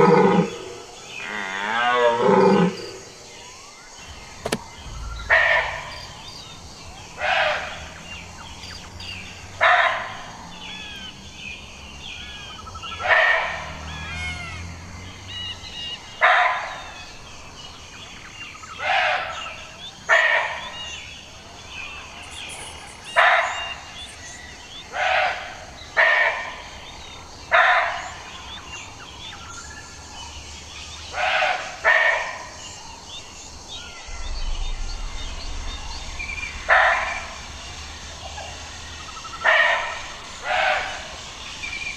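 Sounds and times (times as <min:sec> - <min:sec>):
birds chirping: 0:00.0 - 0:41.9.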